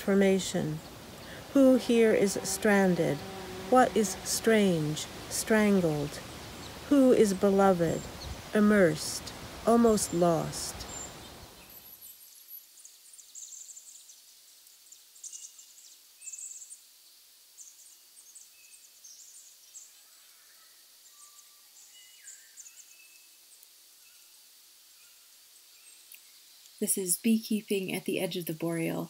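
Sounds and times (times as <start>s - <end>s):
birds chirping: 0.0s - 12.2s.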